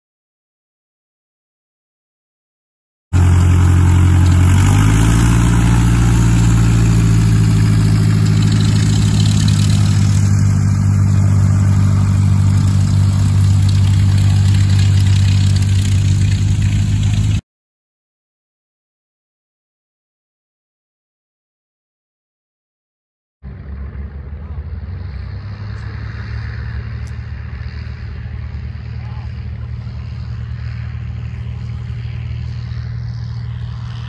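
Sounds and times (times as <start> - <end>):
piston plane engine running: 3.2 - 17.4, 23.5 - 34.0.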